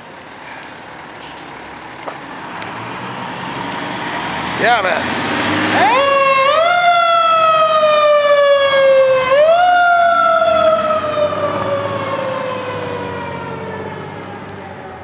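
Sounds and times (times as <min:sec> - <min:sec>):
fire engine siren: 0:05.1 - 0:15.0.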